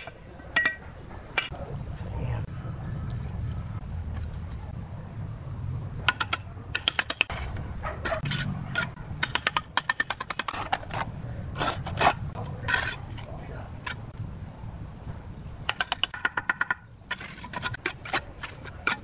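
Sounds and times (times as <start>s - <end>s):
low steady rumble: 0.3s - 9.3s, 10.6s - 15.7s
trowel tapping bricks: 6.0s - 7.4s, 8.1s - 14.0s, 15.7s - 19.0s.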